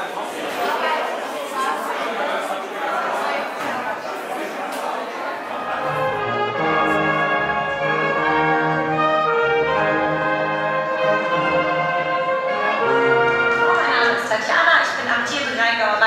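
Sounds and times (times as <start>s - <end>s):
wind band playing held chords: 5.4s - 14.6s.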